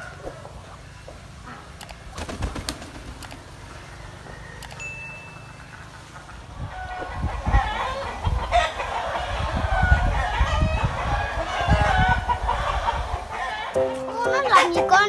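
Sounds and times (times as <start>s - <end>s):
ducks calling: 5.6s - 15.0s.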